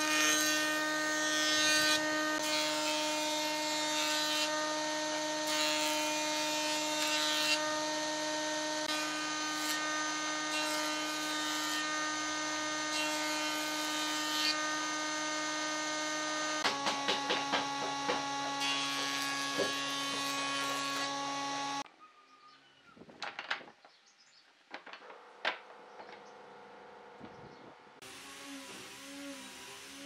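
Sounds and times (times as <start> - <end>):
jointer-planer humming whine: 0.2 - 21.8
knock: 16.6 - 18.3, 19.0 - 19.8.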